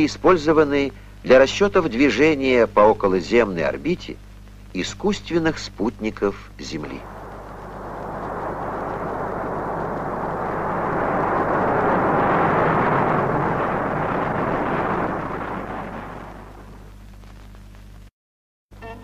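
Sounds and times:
rocket engines rushing: 0:06.8 - 0:17.0.

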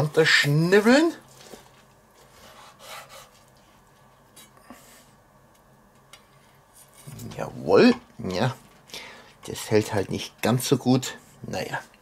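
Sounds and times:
knife sawing through meat: 0:02.4 - 0:03.3.

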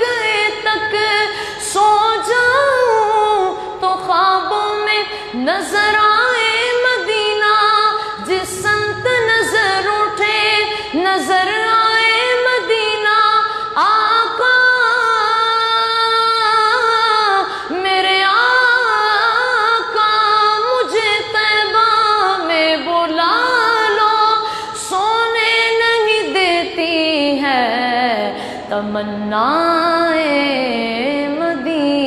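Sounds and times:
boy singing: 0:00.0 - 0:32.0
breaths: 0:01.3 - 0:01.7, 0:05.1 - 0:05.4, 0:08.0 - 0:08.2, 0:10.7 - 0:11.0, 0:13.5 - 0:13.8, 0:17.5 - 0:17.8, 0:24.4 - 0:24.8, 0:28.3 - 0:28.7.

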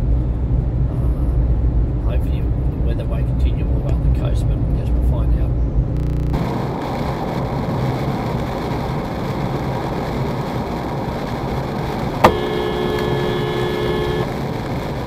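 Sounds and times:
road and tyre noise inside car: 0:00.0 - 0:15.0
car horn blast: 0:12.2 - 0:14.3.

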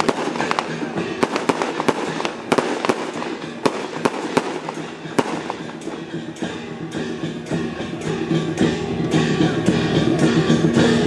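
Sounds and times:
firecrackers cracking: 0:00.0 - 0:06.6
background din: 0:00.0 - 0:08.5.

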